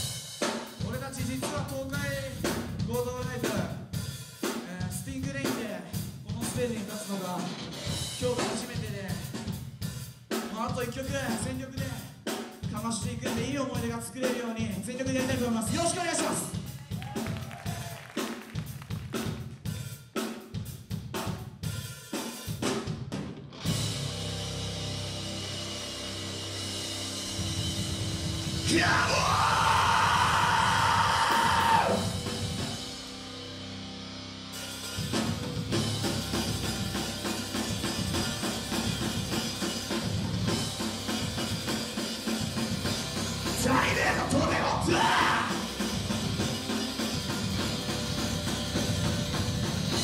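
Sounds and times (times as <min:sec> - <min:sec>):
drum kit hits: 0:22.5 - 0:33.3, 0:34.6 - 0:50.0
rock band held chord: 0:23.4 - 0:50.0.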